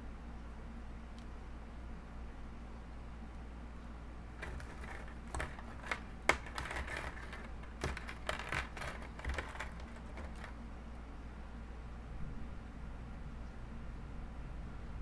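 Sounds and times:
hands handling hair: 4.4s - 10.6s.

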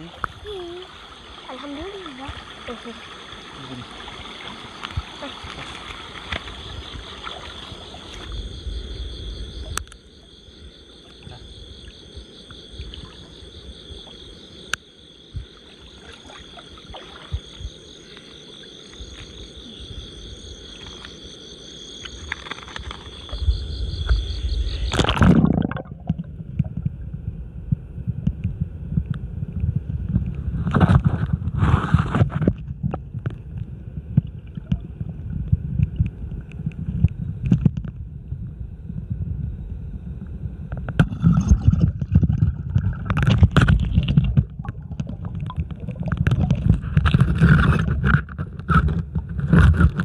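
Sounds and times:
insects and frogs chorus: 0.0s - 25.7s
muffled underwater rumble: 22.4s - 50.0s.

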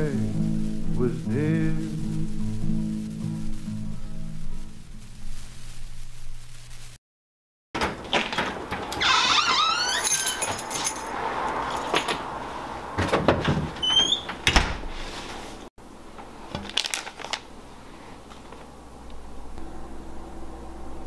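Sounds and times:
short rising squeak: 9.0s - 10.5s, 13.8s - 14.3s.

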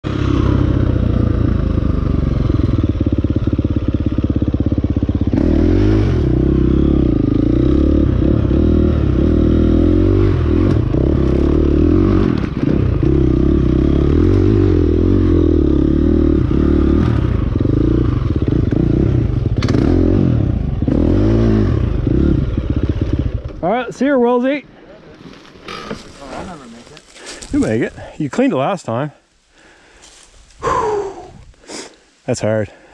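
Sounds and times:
dirt bike engine revving: 0.0s - 24.4s.

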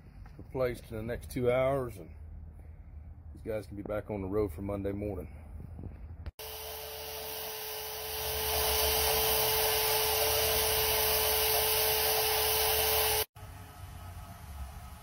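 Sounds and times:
band saw whining: 6.4s - 13.3s.

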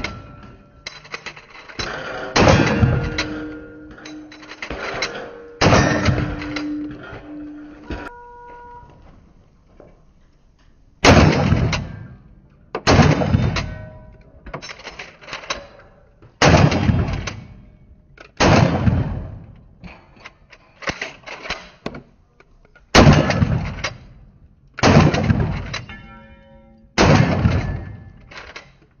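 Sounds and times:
shotgun blasts: 2.4s - 3.4s, 5.6s - 6.7s, 11.0s - 12.1s, 12.8s - 13.7s, 16.4s - 17.5s, 18.4s - 19.5s, 22.9s - 24.0s, 24.8s - 25.8s, 27.0s - 28.0s.

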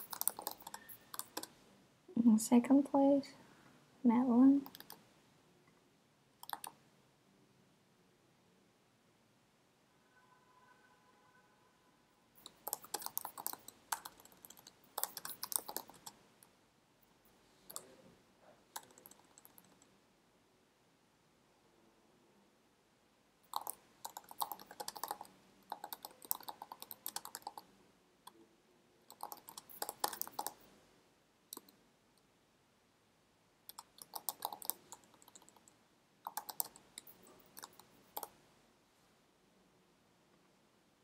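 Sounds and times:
keyboard typing: 0.0s - 1.6s, 4.6s - 5.0s, 6.4s - 6.8s, 12.4s - 16.2s, 17.6s - 18.0s, 18.7s - 20.0s, 23.4s - 27.7s, 29.1s - 30.7s, 31.5s - 31.8s, 33.7s - 38.4s.

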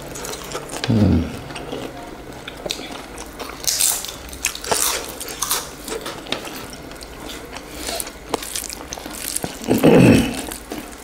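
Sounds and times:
sharp food crackle: 0.0s - 11.0s
wet chewing and biting: 0.3s - 11.0s
person humming mm: 0.8s - 1.5s.

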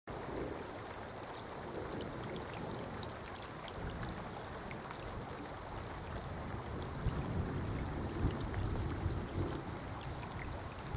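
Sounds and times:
river water flowing: 0.1s - 10.9s
small drip-like ticks: 0.1s - 10.9s
wind rumble on microphone: 0.1s - 10.9s.

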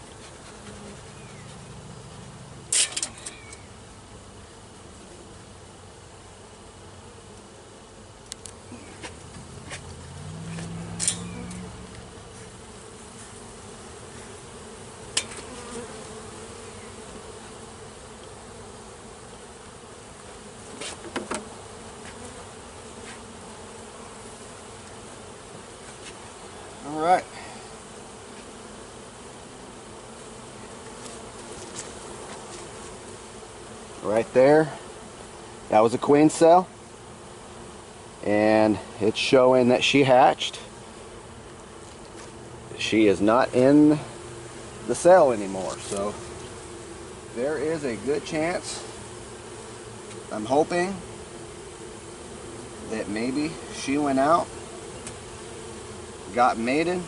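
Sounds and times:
clicks and knocks of hive frames: 0.0s - 1.7s, 2.7s - 3.7s, 8.2s - 16.6s, 20.6s - 26.4s, 30.1s - 33.8s, 41.2s - 42.4s, 44.3s - 50.3s, 54.5s - 55.9s
honey bees buzzing: 0.0s - 57.0s.

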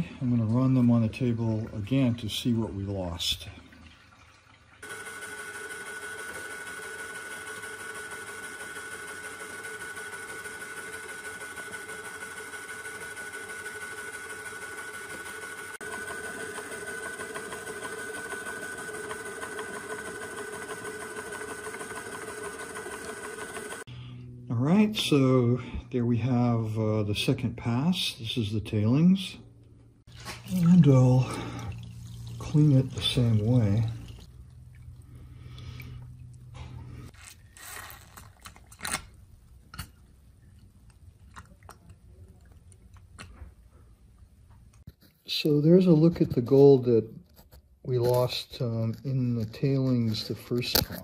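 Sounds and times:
shaking table motor humming: 4.8s - 23.9s, 30.1s - 38.4s
low steady hum: 23.9s - 44.8s.

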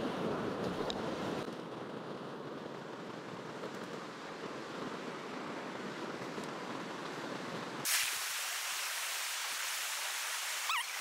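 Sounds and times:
stream water rushing over rocks: 7.8s - 11.0s.

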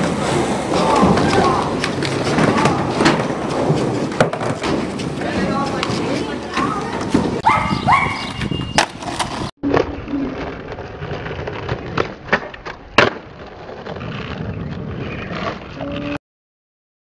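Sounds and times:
skateboard clacking on concrete: 0.0s - 7.4s, 8.4s - 14.4s
skateboard wheels rolling on concrete: 0.0s - 16.2s.

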